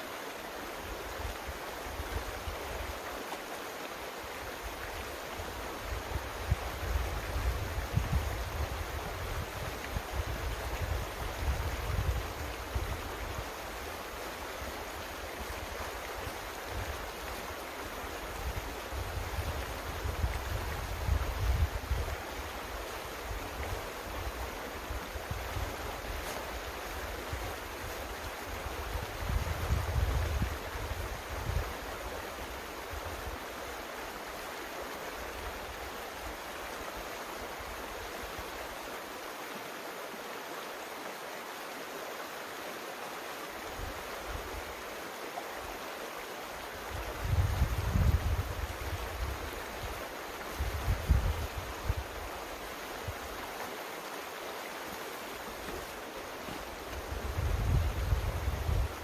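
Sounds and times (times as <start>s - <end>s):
creek water rushing: 0.0s - 59.0s
wind rumble on microphone: 4.8s - 13.9s, 18.1s - 33.4s, 46.8s - 52.4s, 56.6s - 59.0s.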